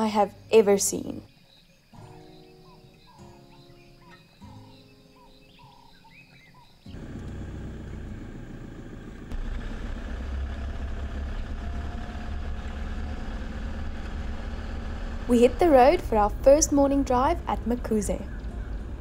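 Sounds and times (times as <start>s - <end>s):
car engine and road rumble: 6.8s - 19.0s.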